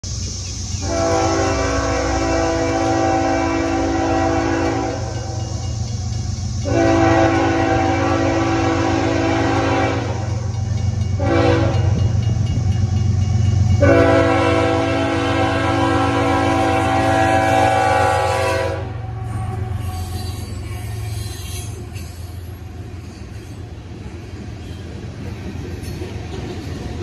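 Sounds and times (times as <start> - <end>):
locomotive air horn blasts: 0.8 - 5.6, 6.6 - 10.5, 11.2 - 12.2, 13.8 - 20.2.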